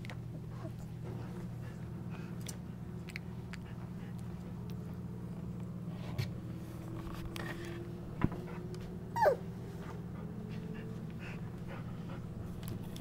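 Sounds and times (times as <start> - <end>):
steady low hum: 0.0 - 13.0
puppy whimper: 9.1 - 9.5.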